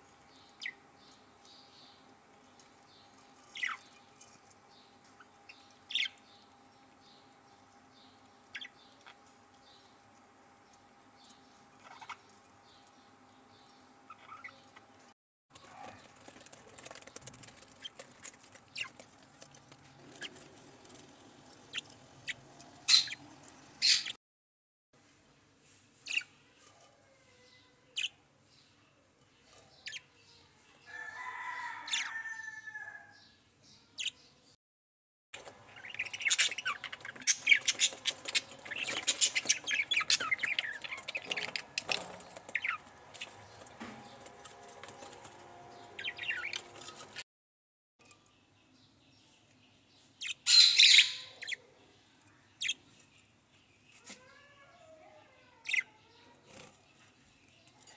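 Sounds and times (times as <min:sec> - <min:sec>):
budgerigars chirping: 0:14.1 - 0:14.8, 0:21.7 - 0:23.2, 0:23.8 - 0:24.2, 0:35.7 - 0:43.6, 0:46.0 - 0:47.2, 0:50.2 - 0:51.6.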